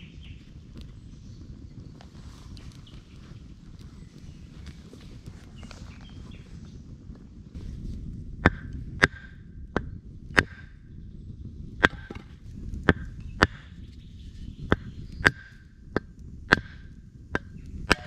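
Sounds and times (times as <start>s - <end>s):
axe chopping wood: 11.8s - 13.6s.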